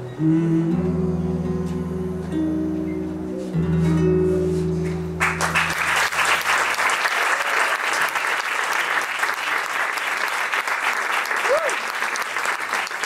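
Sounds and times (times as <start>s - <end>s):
acoustic guitar chord ringing: 0.0s - 6.0s
audience applauding: 5.2s - 13.0s.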